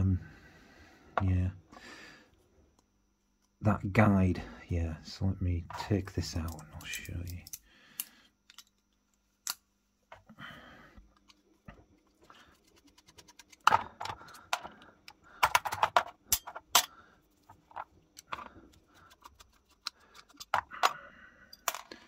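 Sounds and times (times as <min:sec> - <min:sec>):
metal gun parts clicking: 0:06.4 - 0:08.8, 0:19.2 - 0:22.0.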